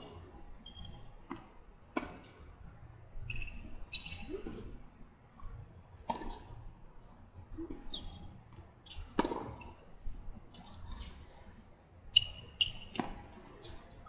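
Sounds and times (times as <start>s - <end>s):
tennis ball hit by racket: 1.3s - 2.3s, 6.1s - 6.5s, 9.2s - 9.6s.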